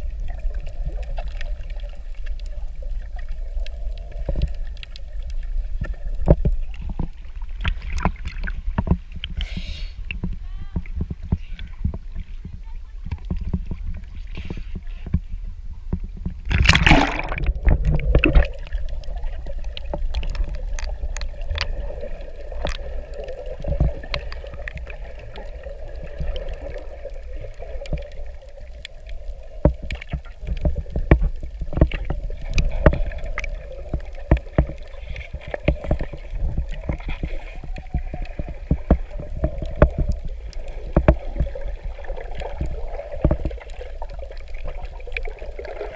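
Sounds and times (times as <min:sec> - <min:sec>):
muffled underwater hum: 0:00.0 - 0:45.9
sharp underwater clicks: 0:15.9 - 0:45.9
splash into water: 0:16.5 - 0:17.6.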